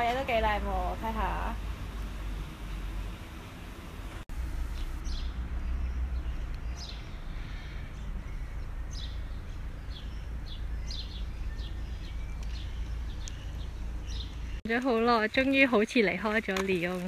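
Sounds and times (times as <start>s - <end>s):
small birds chirping: 4.6s - 16.8s.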